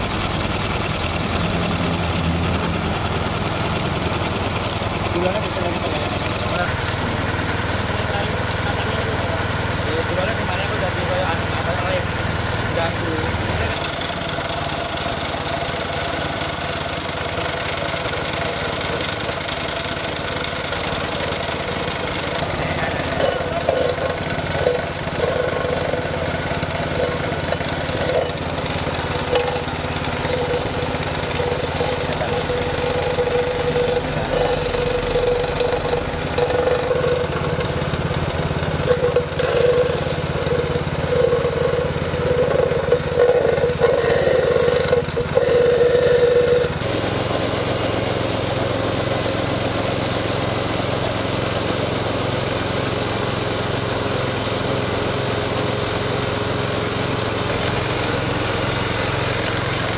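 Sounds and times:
small engine drone: 0.0 - 59.9
wavering mid-pitched whine: 22.2 - 46.8.

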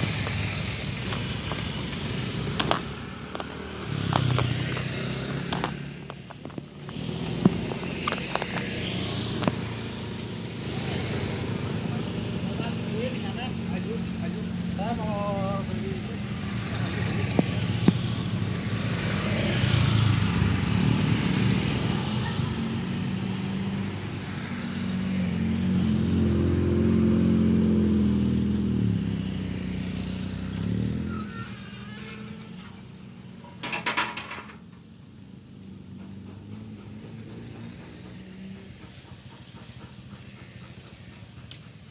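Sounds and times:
vehicles passing: 0.0 - 41.9
crossing barrier rattling: 30.3 - 41.9.

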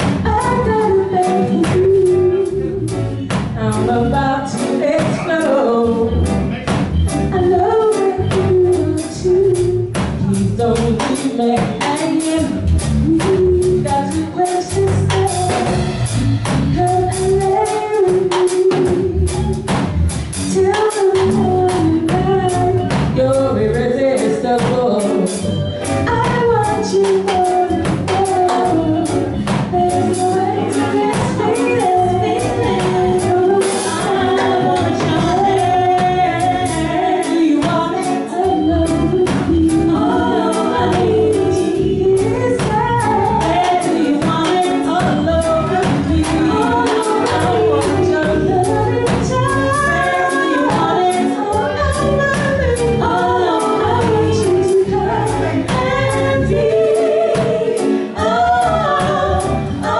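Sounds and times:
woman singing lead: 0.0 - 6.4, 7.3 - 59.9
reggae band playing: 0.0 - 59.9
backing singers: 28.0 - 59.9.

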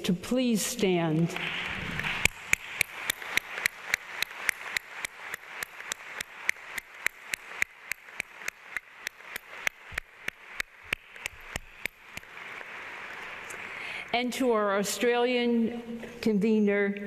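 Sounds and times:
audience clapping: 1.2 - 14.1
person clapping close: 1.3 - 13.9.

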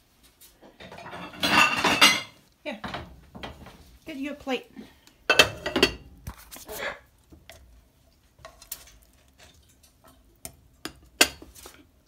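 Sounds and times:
plate and pan clinking: 0.8 - 3.6.

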